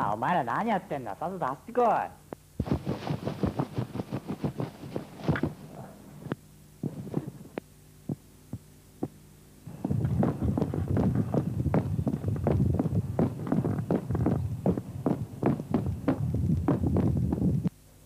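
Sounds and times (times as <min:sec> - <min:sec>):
low steady hum: 0:00.0 - 0:18.0
knocks and thumps: 0:09.8 - 0:17.7.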